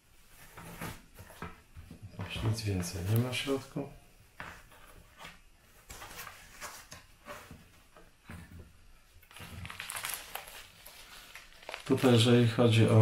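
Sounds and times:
foam rustling: 9.3 - 12.8.

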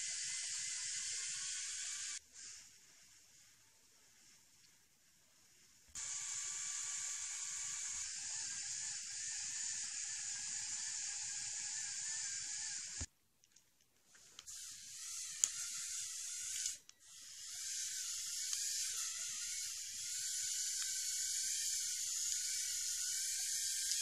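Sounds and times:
toy electric motors whining: 0.0 - 2.8, 5.9 - 13.1, 14.1 - 24.0
click: 15.4 - 15.6, 16.5 - 17.0.

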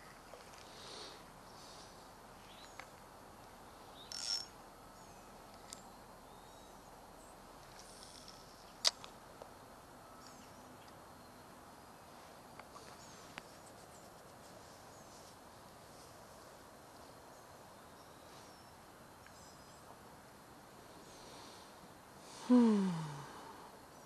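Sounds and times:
wild birds chirping: 0.0 - 3.0, 10.0 - 15.3.

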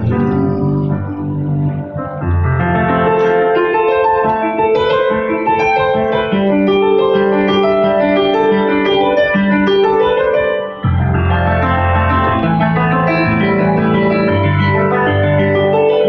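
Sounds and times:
deep bass notes: 0.0 - 3.7, 10.8 - 15.8
keyboard piano-like chords: 0.0 - 16.0.

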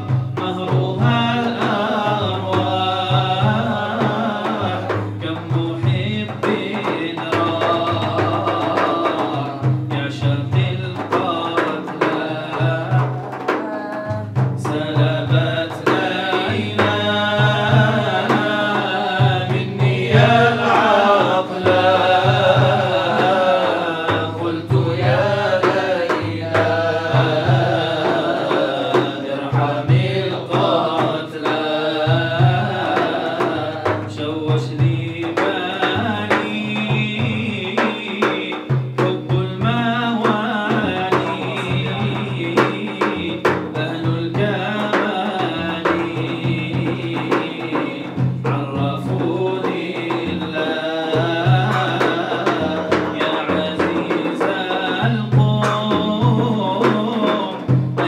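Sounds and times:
hand drum beat: 0.0 - 58.0
man singing into a microphone: 0.0 - 58.0.

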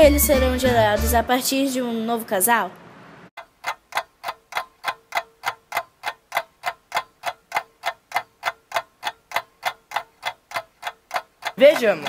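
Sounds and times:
clock ticking: 3.4 - 12.0.

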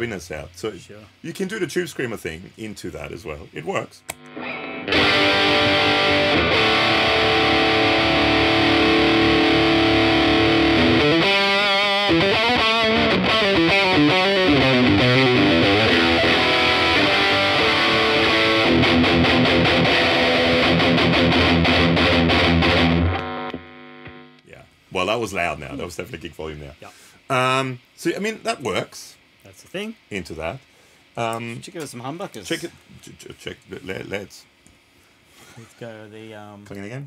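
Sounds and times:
distorted electric guitar: 4.0 - 24.5.

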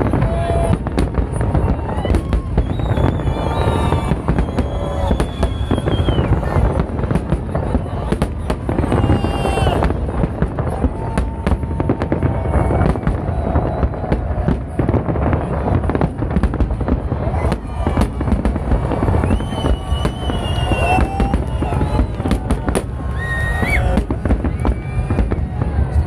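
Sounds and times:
fireworks booming: 0.0 - 26.0
fireworks crackling: 0.0 - 26.0
whistling fireworks: 0.0 - 26.0.

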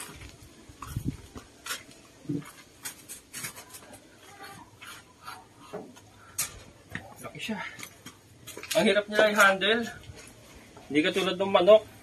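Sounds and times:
rubber boot footsteps on concrete: 0.0 - 3.0.

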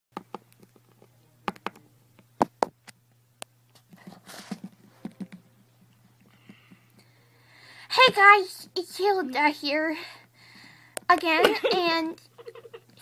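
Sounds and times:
sharp clicks and knocks: 0.2 - 1.8
steady low hum: 0.2 - 13.0.

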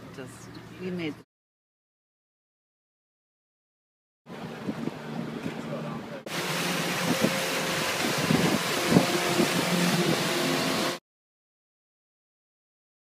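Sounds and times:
boat engine running: 4.3 - 11.0
wind and water hiss: 4.3 - 11.0.

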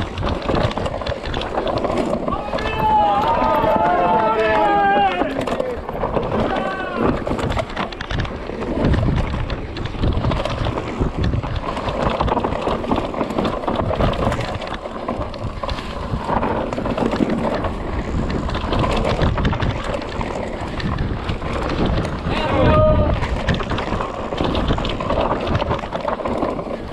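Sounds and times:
bike rattling: 0.0 - 26.9
tyres rumbling on dirt: 0.0 - 26.9
wind buffeting microphone: 0.0 - 26.9.

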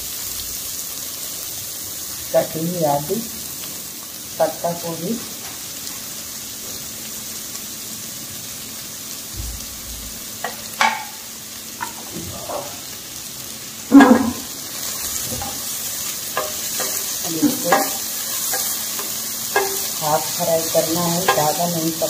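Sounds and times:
vegetables sizzling in oil: 0.0 - 22.0
spatula scraping a pan: 16.3 - 21.8.

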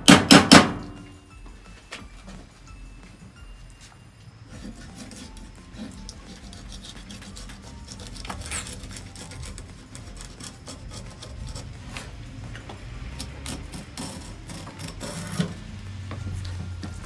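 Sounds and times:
knife scraping fish on board: 4.6 - 12.2.

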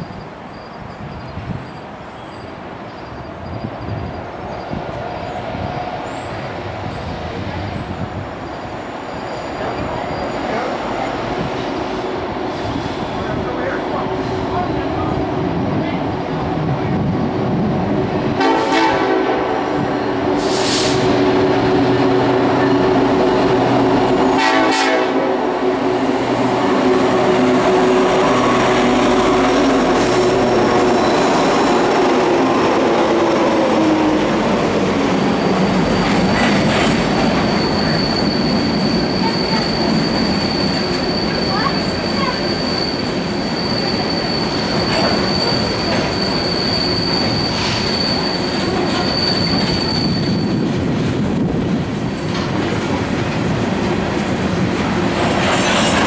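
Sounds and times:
high wheel squeal: 0.0 - 11.5, 19.7 - 24.3, 26.6 - 32.3, 34.5 - 50.9
diesel locomotive drone: 0.0 - 56.0
train wheels clattering on rail: 26.4 - 56.0.

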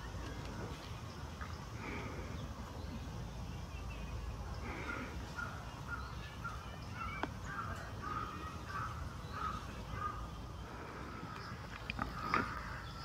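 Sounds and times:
crows cawing: 4.7 - 13.0.

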